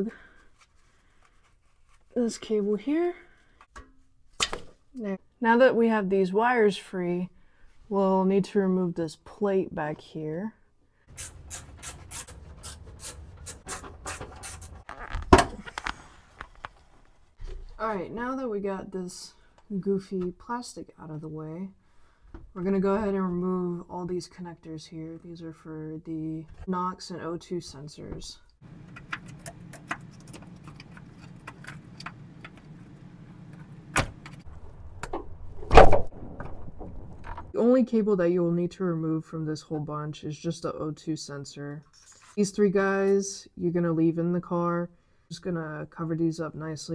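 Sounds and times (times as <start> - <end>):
screwdriver rasping scrape: 11.1 - 14.9.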